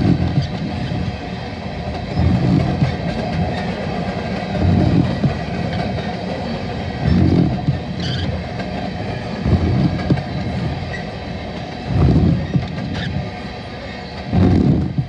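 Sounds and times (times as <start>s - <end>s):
railcar trucks clunking: 0.0s - 15.0s
train wheels rumbling on rails: 0.0s - 15.0s.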